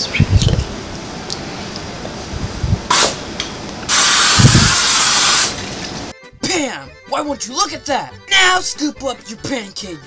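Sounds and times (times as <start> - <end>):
aerosol spray hissing: 2.9 - 3.2, 3.9 - 5.6.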